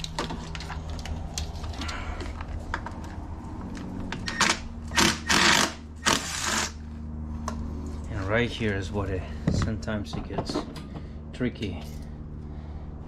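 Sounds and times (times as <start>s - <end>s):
low hum: 0.0s - 10.1s
power ratchet running: 4.3s - 6.8s.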